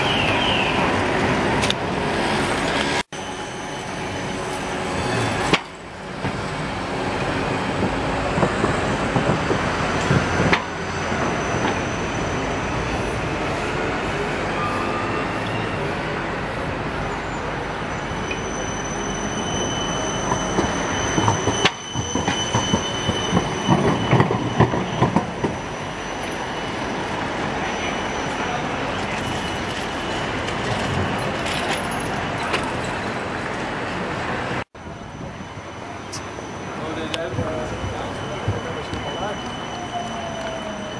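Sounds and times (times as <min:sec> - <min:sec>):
tram clattering over rail junction: 0:00.0 - 0:40.9
tram wheels squealing: 0:00.0 - 0:40.9.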